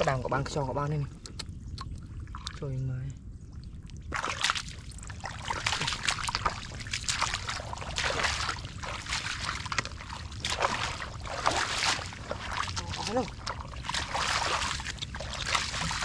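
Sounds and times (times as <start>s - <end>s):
feet splashing through muddy water: 4.1s - 16.0s.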